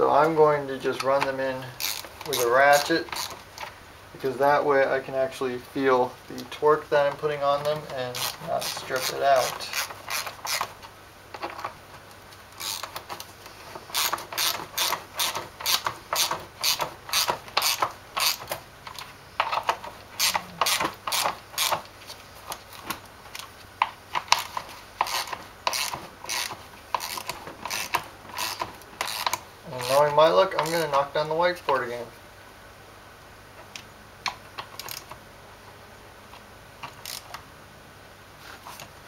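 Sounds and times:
hand ratchet clicking: 1.8 - 3.7, 7.7 - 10.8, 12.6 - 13.3, 13.9 - 21.9, 24.1 - 31.0, 34.2 - 35.1, 36.8 - 37.4.

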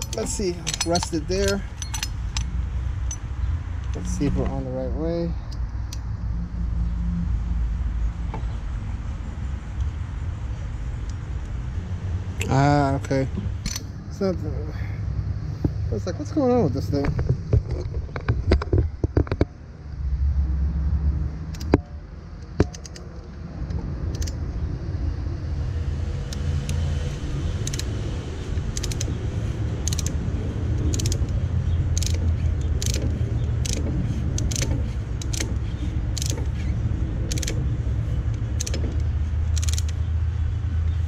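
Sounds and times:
ratcheting tool clicking: 0.0 - 3.2, 27.6 - 27.9, 28.5 - 29.2, 29.8 - 30.2, 30.8 - 40.1
steady low rumble: 0.0 - 41.0.

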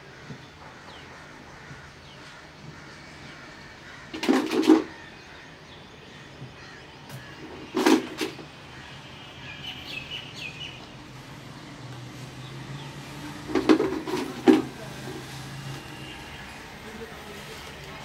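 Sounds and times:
plastic toys knocking on blocks: 4.1 - 4.9, 7.5 - 8.4, 13.5 - 14.7.

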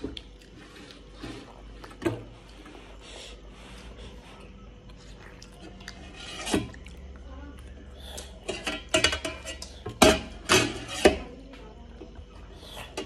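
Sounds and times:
cutlery clinking on steel bowls: 8.2 - 11.3.

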